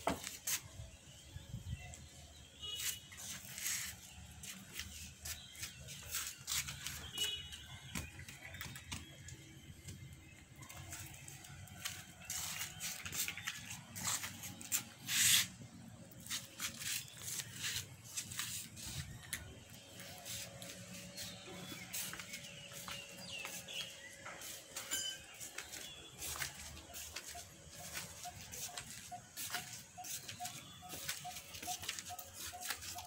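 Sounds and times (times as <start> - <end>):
rustling of leaves: 2.8 - 7.2, 10.6 - 15.5.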